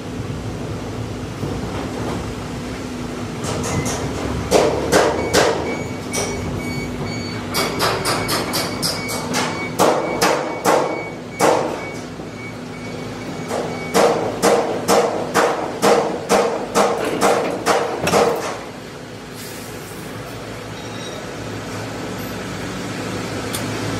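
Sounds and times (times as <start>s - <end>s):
hammer striking metal: 7.6s - 11.8s.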